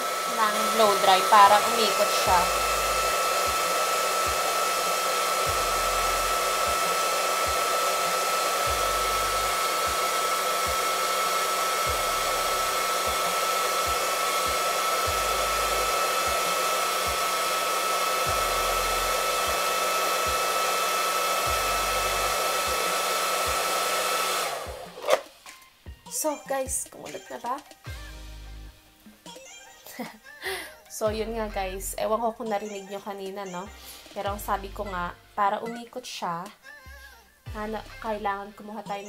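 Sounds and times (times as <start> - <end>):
hair dryer whining: 0.0 - 25.4.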